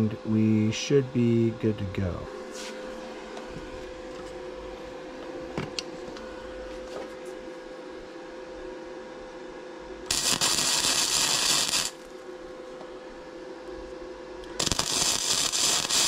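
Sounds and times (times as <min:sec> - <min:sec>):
steady hum: 0:00.0 - 0:16.0
welding arc crackling: 0:10.1 - 0:12.1, 0:14.4 - 0:16.0.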